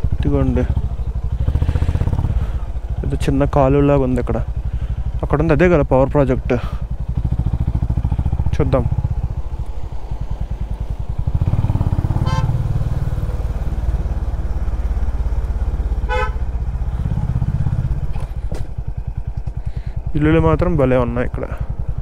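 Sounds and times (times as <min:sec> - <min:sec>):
motorcycle engine running: 0:00.0 - 0:22.0
motorcycle horn toots: 0:12.0 - 0:12.7, 0:16.0 - 0:16.6.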